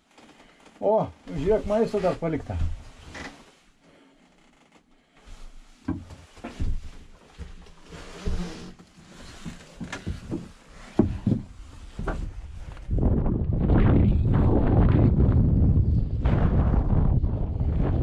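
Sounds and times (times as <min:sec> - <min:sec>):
footsteps on wooden boards: 0:01.3 - 0:03.4, 0:05.2 - 0:13.1
knocks and clicks of handling objects: 0:05.8 - 0:07.7, 0:09.4 - 0:12.3.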